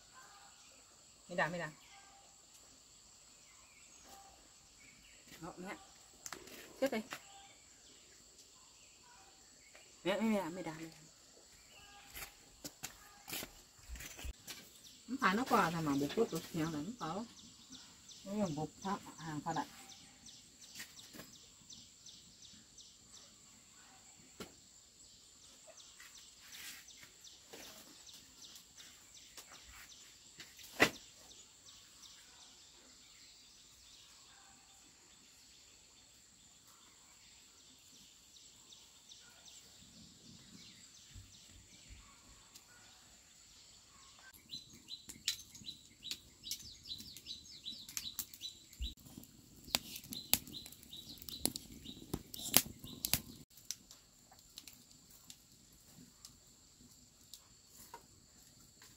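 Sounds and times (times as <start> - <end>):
birds chirping: 39.2 - 53.5.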